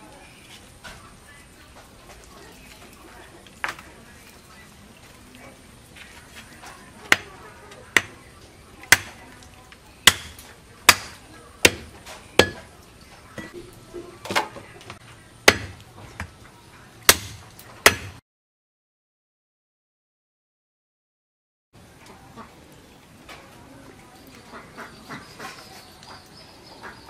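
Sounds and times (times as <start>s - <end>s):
cleaver chopping meat and bone: 7.1s - 9.2s, 10.0s - 12.7s, 15.4s - 16.3s, 17.1s - 18.2s.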